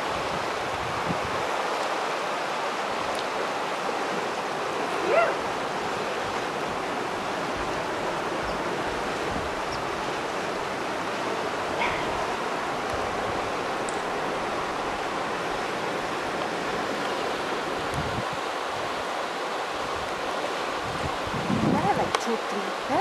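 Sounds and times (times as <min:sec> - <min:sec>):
rushing water: 0:00.0 - 0:23.0
short bark-like call: 0:11.8 - 0:12.2.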